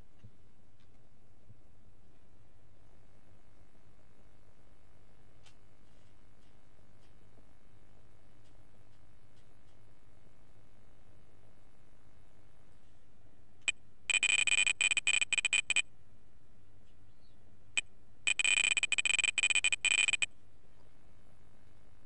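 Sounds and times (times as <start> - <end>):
rapid high-pitched beeping: 14.1 - 15.8, 18.3 - 20.3
short beep: 14.1 - 15.8, 18.3 - 20.3.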